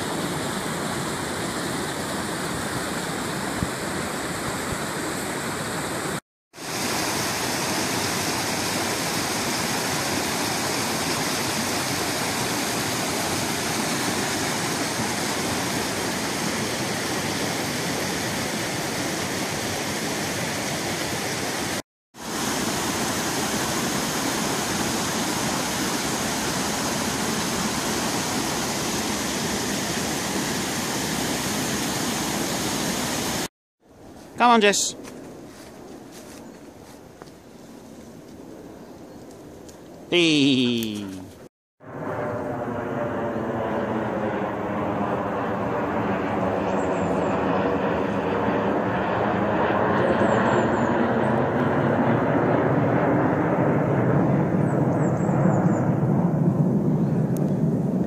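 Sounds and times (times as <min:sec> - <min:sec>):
stream rushing over rocks: 0:06.6 - 0:19.4.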